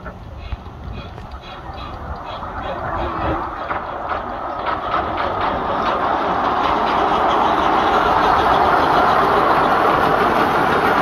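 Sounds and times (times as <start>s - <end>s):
miniature steam locomotive running: 0.0s - 11.0s.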